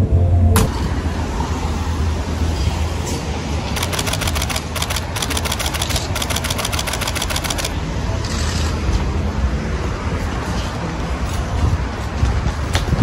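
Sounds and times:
street traffic noise: 0.0s - 13.0s
camera shutters clicking: 3.8s - 7.8s.

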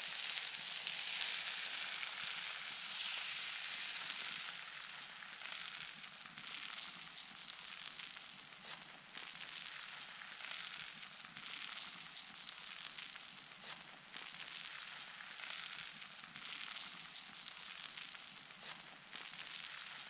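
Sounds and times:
faint fire crackles: 0.0s - 20.0s
food sizzling on hot plate: 0.0s - 20.0s.

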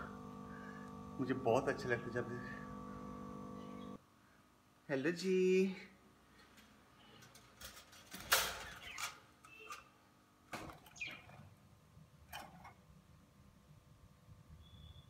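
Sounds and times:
clicks knocks and rustles in cage: 6.6s - 9.2s.

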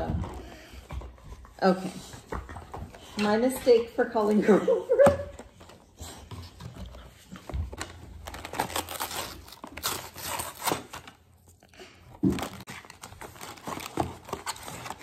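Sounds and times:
cardboard packaging crinkling and tearing: 6.6s - 15.0s.

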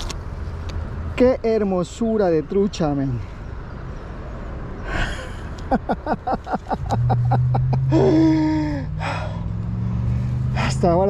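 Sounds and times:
vehicle engine hum: 0.0s - 11.0s
man laughing excitedly: 4.9s - 9.0s.

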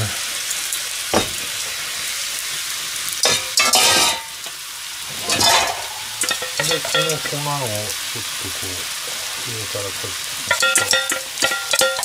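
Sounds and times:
food sizzling in a frying pan: 0.0s - 12.0s
metal lid clattering: 3.2s - 4.3s, 5.1s - 7.4s, 10.5s - 12.0s.

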